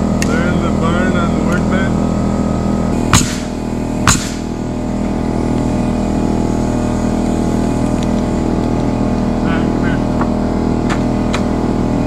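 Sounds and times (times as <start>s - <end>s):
engine running: 0.0s - 12.0s
nail gun firing into wood: 3.1s - 4.5s.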